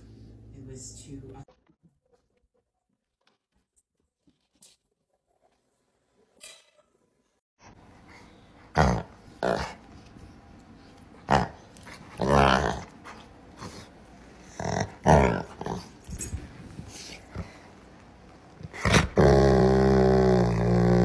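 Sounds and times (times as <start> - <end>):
dog growling playfully: 8.6 - 10.0, 11.2 - 16.5, 18.6 - 21.0.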